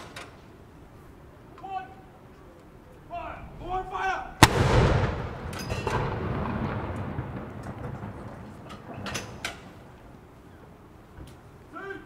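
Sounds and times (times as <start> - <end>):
gunshot echo rumbling: 4.4 - 9.9.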